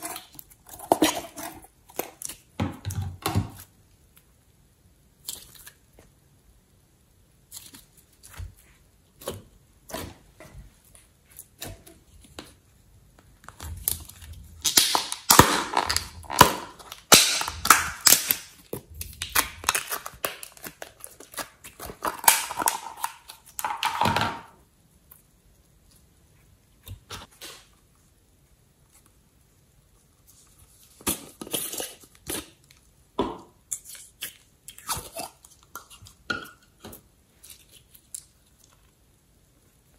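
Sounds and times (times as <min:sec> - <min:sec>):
slime crackling and squishing: 0:13.2 - 0:24.0.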